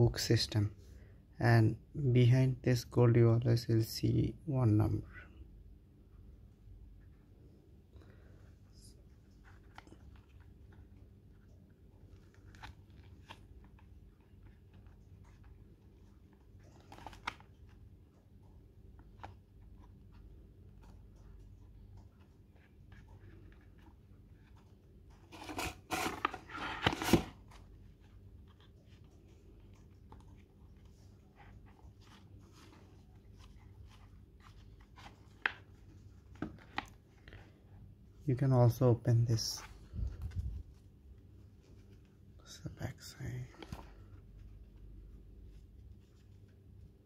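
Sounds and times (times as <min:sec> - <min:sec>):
low steady hum: 0:00.0 - 0:47.0
box rustling and scraping: 0:25.2 - 0:27.6.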